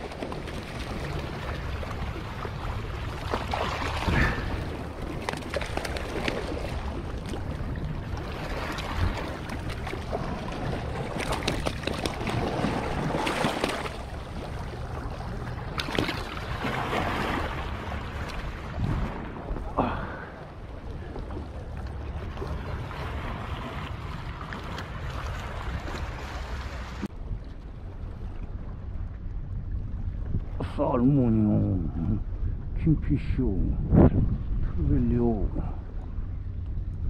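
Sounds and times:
sea water sloshing against rocks: 0.0s - 29.4s.

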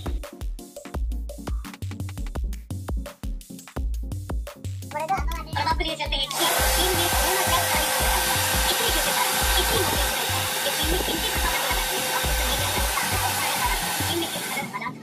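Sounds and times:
hair dryer blowing: 6.3s - 15.0s.

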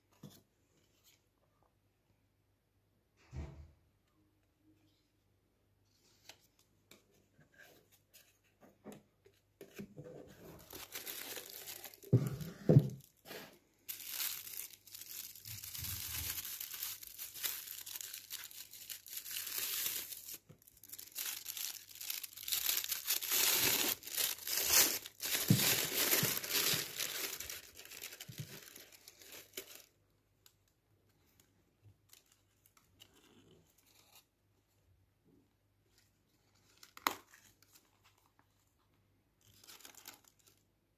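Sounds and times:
tissue paper crinkling: 10.4s - 30.0s, 39.4s - 40.6s.

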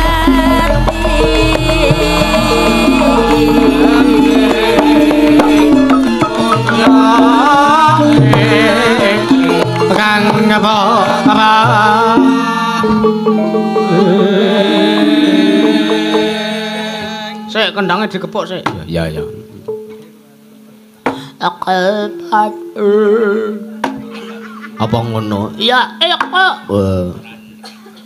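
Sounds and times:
hand drum strokes: 0.0s - 17.3s
gamelan playing: 0.0s - 17.6s, 19.2s - 20.1s, 22.0s - 26.8s
person singing: 0.0s - 17.6s, 21.3s - 24.4s.

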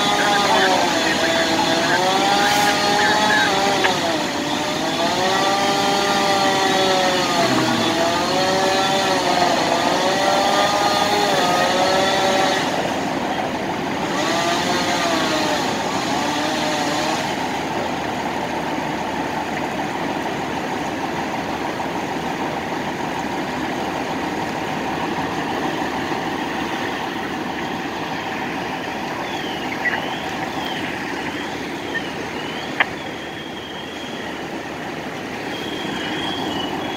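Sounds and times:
power saw revving: 0.0s - 17.8s
fire truck engines running: 0.0s - 36.9s.

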